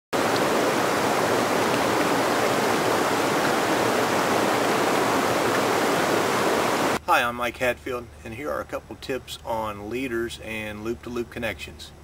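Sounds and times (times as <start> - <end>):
stream rushing over rocks: 0.1 - 7.0.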